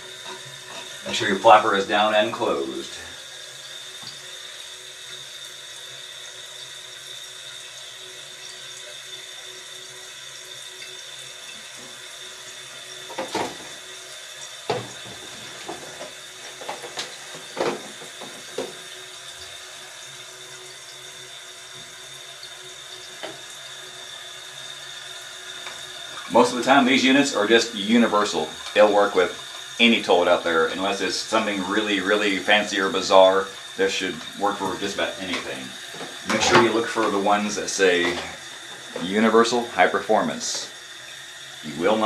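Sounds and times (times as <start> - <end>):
toilet tank refilling: 0.0 - 42.0.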